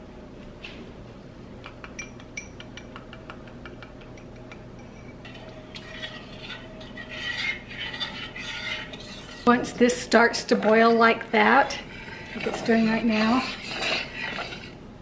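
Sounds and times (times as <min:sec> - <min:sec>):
whisk clicking against ceramic bowl: 0:01.6 - 0:09.5
spoon scraping metal saucepan: 0:04.8 - 0:14.8.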